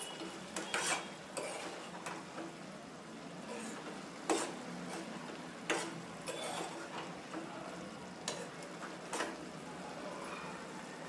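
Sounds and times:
metal spatula scraping pan: 0.0s - 2.3s, 3.4s - 7.0s, 8.2s - 9.4s
food sizzling: 0.0s - 11.0s.

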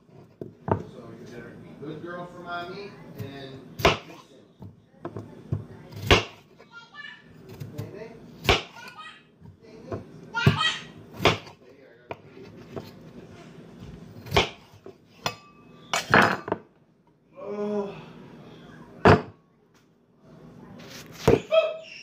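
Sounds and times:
dishes and utensils knocking: 15.2s - 16.7s, 19.0s - 19.4s.

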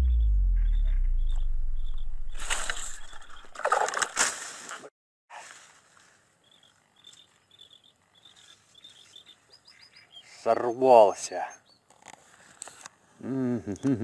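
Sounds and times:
bird chirps: 0.0s - 3.6s, 6.4s - 11.9s.

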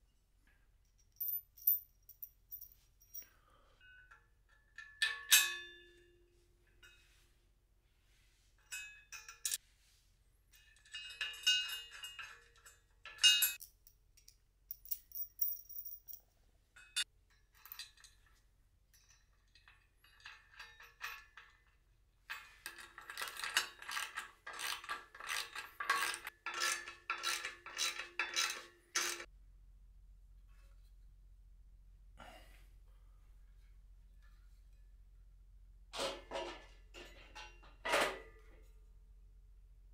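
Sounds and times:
metal hardware clinking and rattling: 1.0s - 5.7s, 10.5s - 16.2s, 16.8s - 29.3s
regular metallic clicks: 13.4s - 16.2s.

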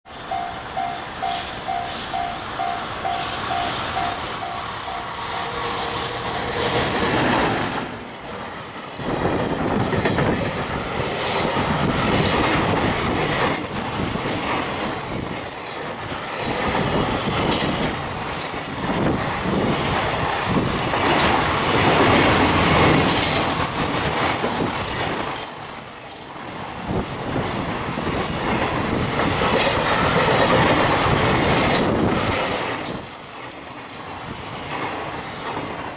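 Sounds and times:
electric locomotive passing: 0.1s - 35.9s
train wheels rumbling on rail: 0.1s - 35.9s
wheels clattering over rail joints: 6.6s - 25.7s, 26.8s - 33.4s.

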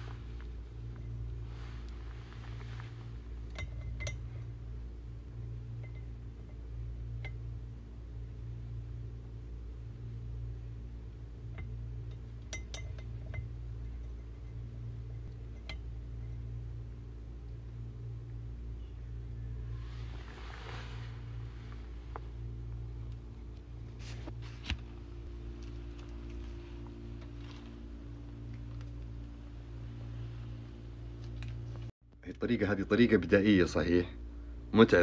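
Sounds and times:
steady low hum: 0.0s - 35.0s
glass vials clinking: 3.4s - 4.5s, 11.6s - 16.0s.

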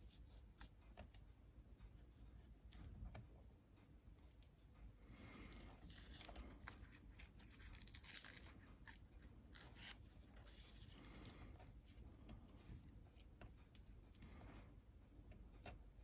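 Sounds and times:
paper rustling and tearing: 5.8s - 10.9s.

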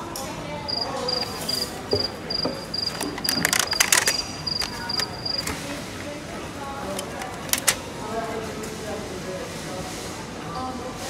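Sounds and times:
cricket chirping: 0.7s - 5.5s.

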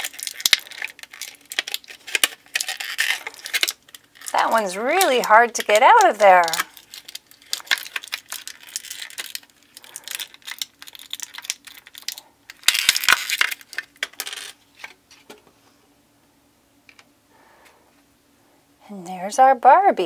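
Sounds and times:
plastic packaging crinkling: 0.0s - 15.4s
plastic pieces clicking and tapping: 0.0s - 15.4s.

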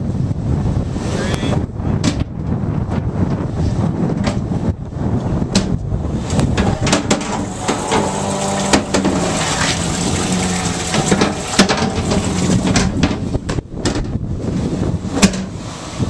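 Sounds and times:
knocks on aluminum boat: 2.0s - 2.3s, 5.5s - 5.8s, 6.4s - 9.4s, 10.3s - 14.2s, 15.1s - 15.6s
water sloshing and splashing: 6.2s - 16.0s.

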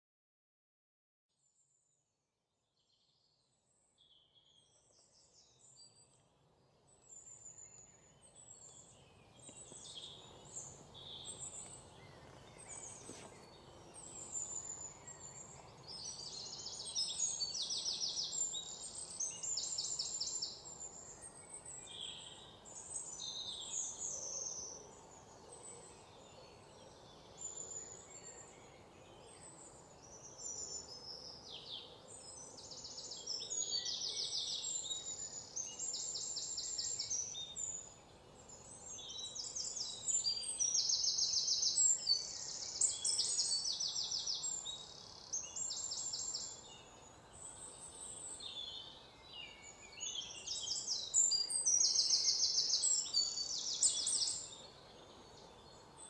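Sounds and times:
low steady hiss: 2.6s - 56.0s
small birds chirping and singing: 2.8s - 56.0s.

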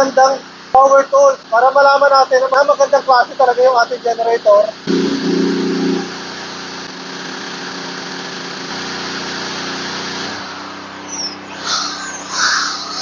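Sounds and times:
generator engine running: 0.0s - 13.0s
welding arc crackling and hissing: 1.0s - 11.3s
short high-pitched sounds: 4.9s - 6.2s.

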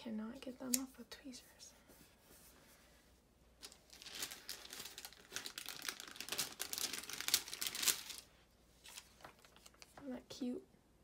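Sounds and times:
paper sticker sheet crinkling: 3.6s - 10.0s.

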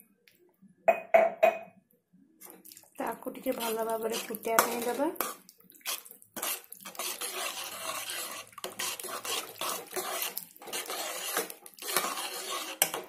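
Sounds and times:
spatula scraping mash in pan: 3.4s - 13.0s.

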